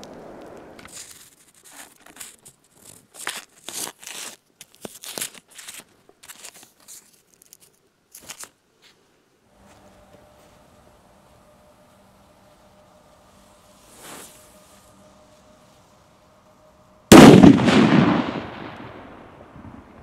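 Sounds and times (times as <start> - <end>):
paper and cardboard rustling: 0.9 - 9.0.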